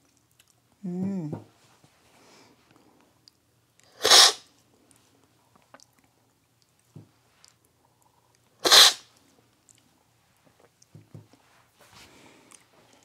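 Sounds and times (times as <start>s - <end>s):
loud coffee slurps: 4.0s - 4.4s, 8.6s - 9.0s.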